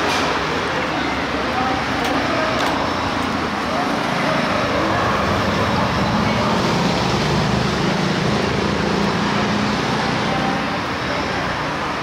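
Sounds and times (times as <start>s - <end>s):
city street traffic noise: 0.0s - 12.0s.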